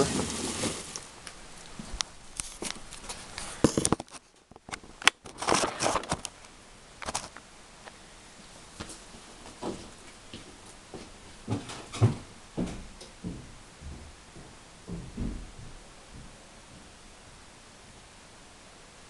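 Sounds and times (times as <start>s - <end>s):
paper rustling: 0.0s - 1.2s, 5.2s - 6.2s.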